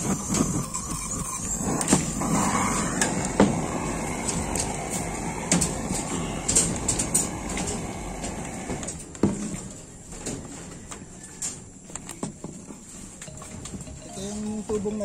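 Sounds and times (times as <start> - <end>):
torch flame rushing: 0.0 - 9.0.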